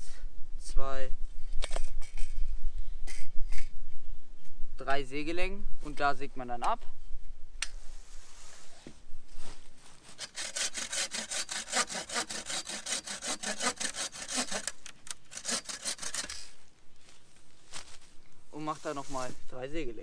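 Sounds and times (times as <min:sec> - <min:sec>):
bow saw cutting wood: 0:10.0 - 0:16.6.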